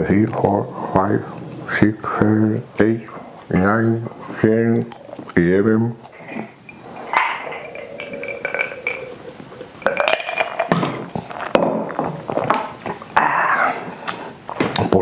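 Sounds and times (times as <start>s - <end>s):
bottles and capsules clinking: 6.2s - 12.3s.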